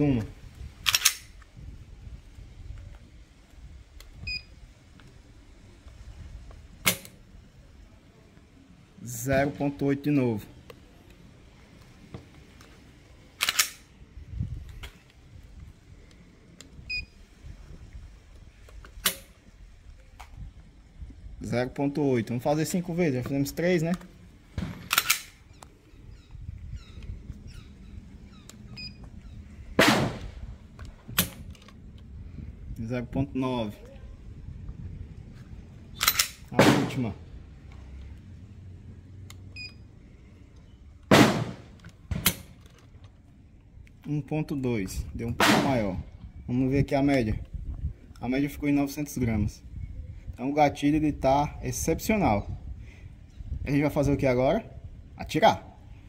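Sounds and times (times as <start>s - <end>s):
pistol dry-fire click: 0.8s - 1.5s, 13.4s - 13.9s, 18.9s - 19.3s, 24.9s - 25.7s, 36.0s - 36.5s
faint bird chirps: 25.4s - 29.5s.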